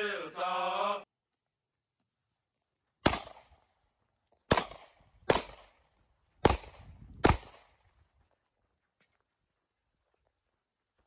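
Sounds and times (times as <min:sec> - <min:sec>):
gunshots with echo: 0:04.5 - 0:05.8, 0:06.4 - 0:07.7.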